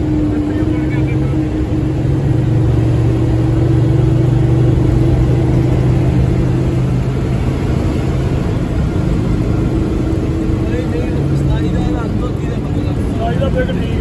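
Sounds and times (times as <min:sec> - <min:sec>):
bus engine droning: 0:00.0 - 0:14.0.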